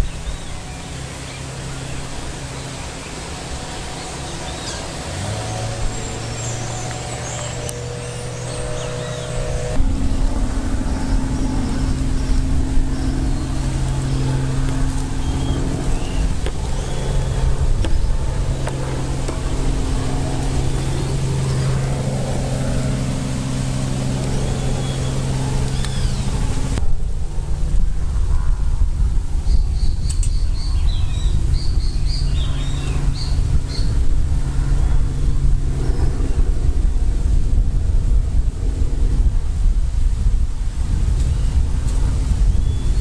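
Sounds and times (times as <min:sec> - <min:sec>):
birds chirping: 0:00.0 - 0:26.8, 0:29.5 - 0:34.0, 0:41.2 - 0:43.0
motor hum: 0:00.0 - 0:43.0.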